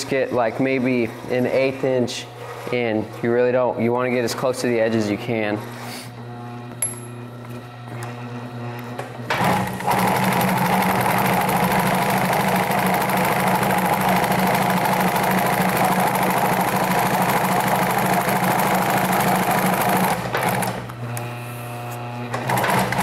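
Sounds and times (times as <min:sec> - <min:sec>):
sewing machine stitching: 0:09.3 - 0:20.9, 0:22.3 - 0:23.0.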